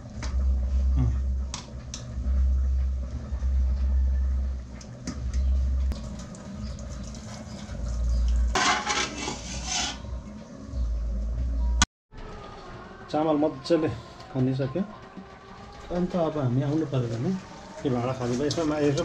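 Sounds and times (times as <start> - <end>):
low rumble: 0.0 - 7.0
metal pot clanking: 8.1 - 10.0.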